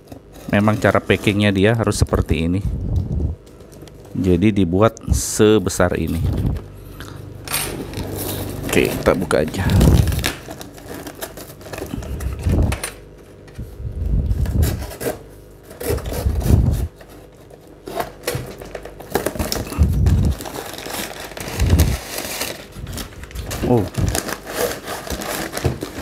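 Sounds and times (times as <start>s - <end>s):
paper packing crinkling: 7.9s - 12.9s, 13.6s - 26.0s
cardboard box tearing: 14.4s - 26.0s.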